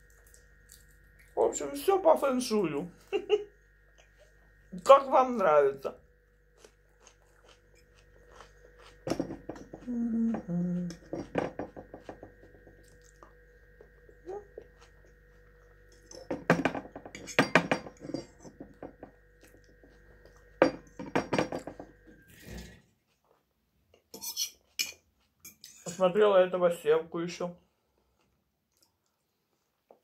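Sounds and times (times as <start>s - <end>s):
metal fork scraping frying pan: 24.2s - 26.0s.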